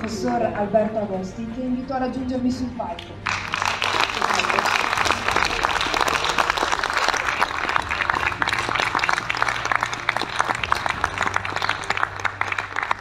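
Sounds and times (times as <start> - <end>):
audience applause: 3.2 - 13.0.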